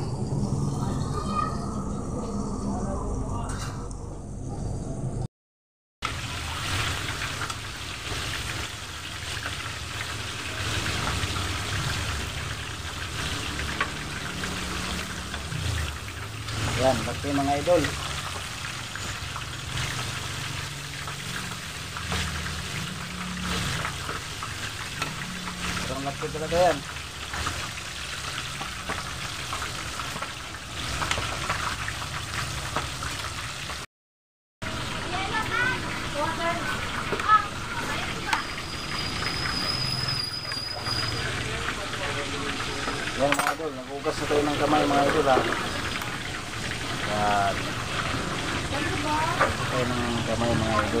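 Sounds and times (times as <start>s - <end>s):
chicken deep-frying in oil: 6.0s - 33.9s, 34.6s - 51.0s.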